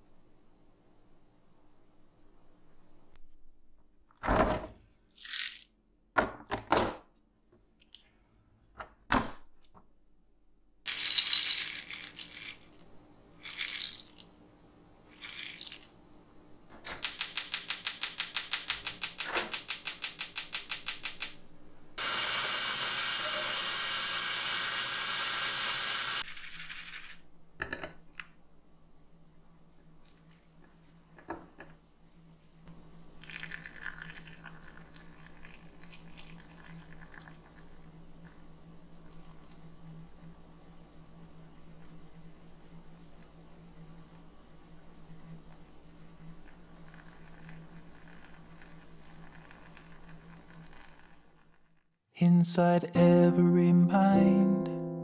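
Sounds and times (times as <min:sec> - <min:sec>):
coffee beans rattling into dish: 0:05.1 - 0:05.7, 0:10.9 - 0:12.7, 0:13.4 - 0:14.3, 0:15.1 - 0:15.9, 0:26.2 - 0:27.2, 0:46.8 - 0:51.6
coffee grinder whirring: 0:22.0 - 0:27.2.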